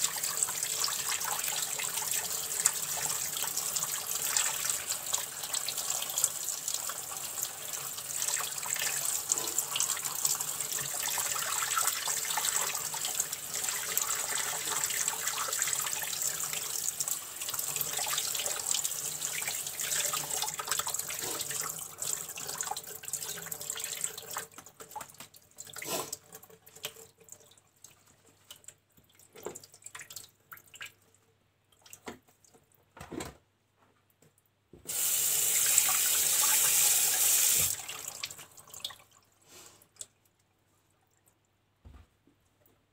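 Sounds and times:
knocks and handling sounds: 0:32.0 - 0:34.9, 0:41.8 - 0:42.9
tap running into a sink: 0:37.2 - 0:37.8.

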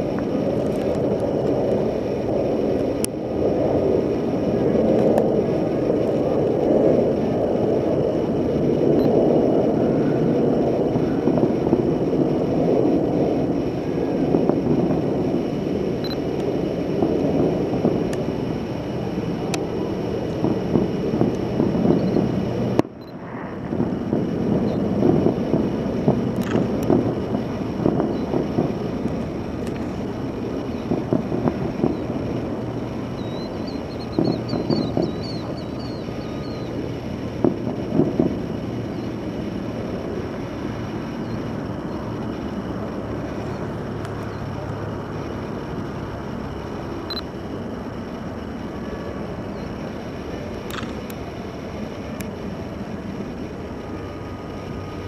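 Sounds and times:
distant fireworks booms: 0:00.0 - 0:55.0
sharp firework pops: 0:19.4 - 0:39.6.

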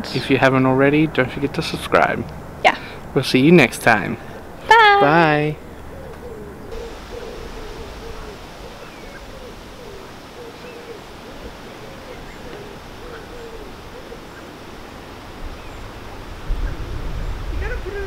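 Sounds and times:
small birds chirping: 0:04.4 - 0:16.9
pigeon cooing: 0:05.8 - 0:14.8
wind rumble on microphone: 0:06.5 - 0:18.0.

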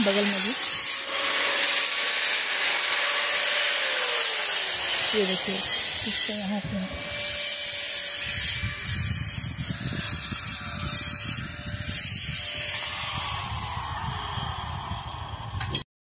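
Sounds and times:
small electric power tool running: 0:00.0 - 0:15.8
wind buffeting microphone: 0:08.1 - 0:15.8.

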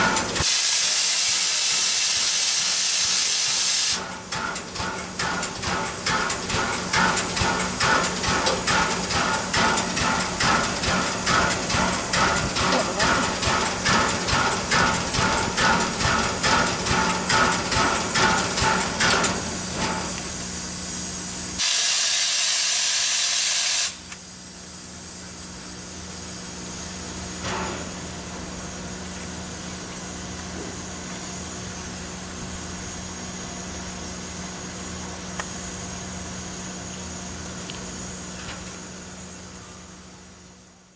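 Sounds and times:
loud burst of steam hiss: 0:00.0 - 0:38.2
steady steam hiss: 0:00.0 - 0:40.9
steam locomotive exhaust chuffs: 0:00.0 - 0:40.9.

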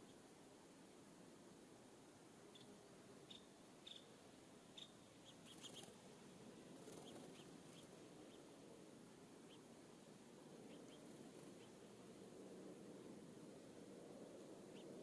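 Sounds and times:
low background hiss: 0:00.0 - 0:15.0
faint songbird chirps: 0:02.4 - 0:08.7, 0:09.4 - 0:09.8, 0:10.5 - 0:12.1, 0:14.6 - 0:15.0.

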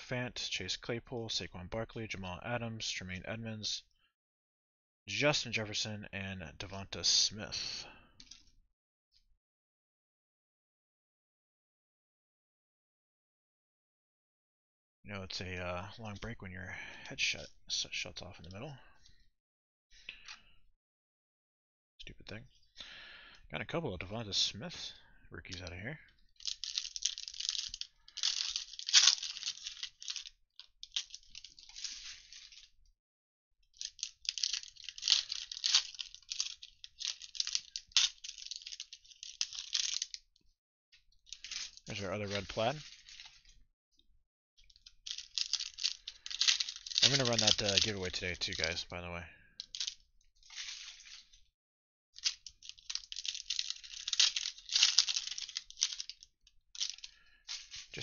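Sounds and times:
foil wrappers crinkling and tearing: 0:26.4 - 0:32.7, 0:33.8 - 0:40.2, 0:41.3 - 0:43.6, 0:44.7 - 0:48.7, 0:49.6 - 0:51.5, 0:52.2 - 0:58.0.

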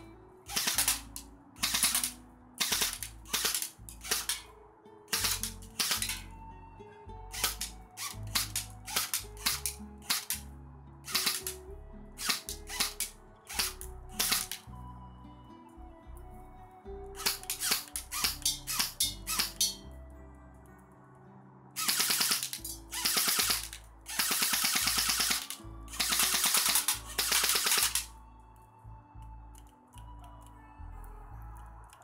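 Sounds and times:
background music: 0:00.0 - 0:32.0
airsoft rifle firing bursts: 0:00.5 - 0:04.5, 0:05.1 - 0:06.3, 0:07.3 - 0:10.4, 0:11.0 - 0:11.6, 0:12.2 - 0:14.6, 0:17.2 - 0:19.8, 0:21.8 - 0:28.1.

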